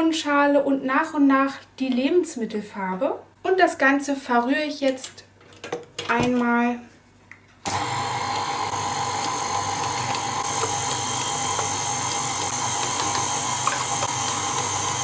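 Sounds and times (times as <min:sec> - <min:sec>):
stand mixer running: 0:07.7 - 0:15.0.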